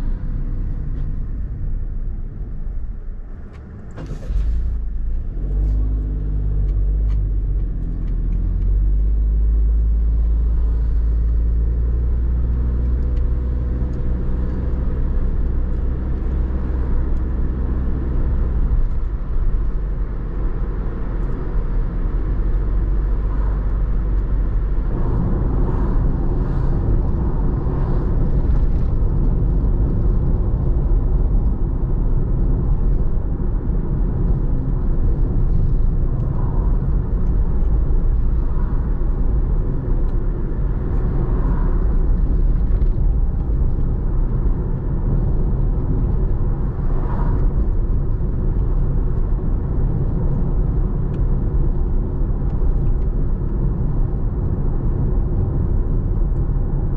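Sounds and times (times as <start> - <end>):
car driving on road: 0.0 - 56.9.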